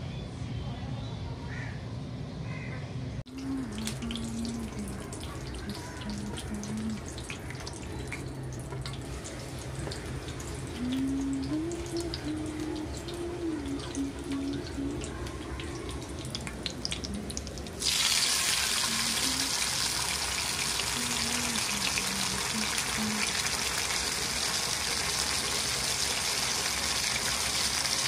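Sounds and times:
fish sizzling in hot oil: 15.6s - 28.0s.

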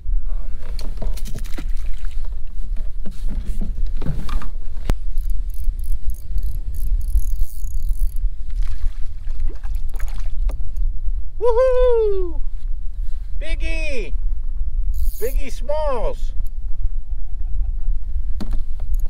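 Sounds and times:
wind on microphone: 0.0s - 19.0s
fishing reel whirring: 5.0s - 8.4s, 14.9s - 15.5s.

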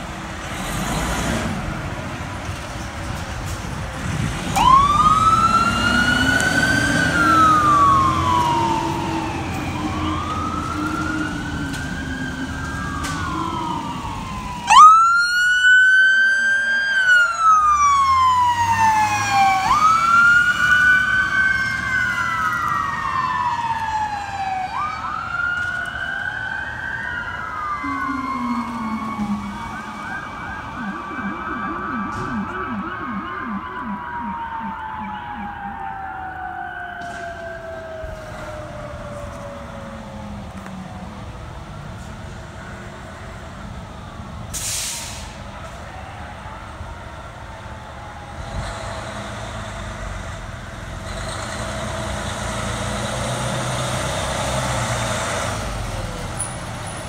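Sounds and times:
sirens wailing: 1.4s - 57.0s
rapid siren yelp: 4.6s - 40.9s
low drone: 27.8s - 38.9s.

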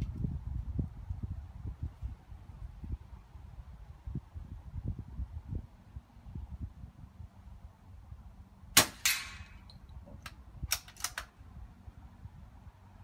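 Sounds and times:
air rifle shot: 8.8s - 9.6s
sharp clicks: 9.1s - 11.3s.

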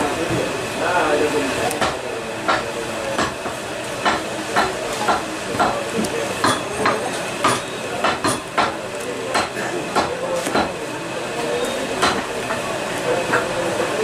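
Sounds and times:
cleaver chopping meat on wood: 1.7s - 5.8s, 6.4s - 10.8s.

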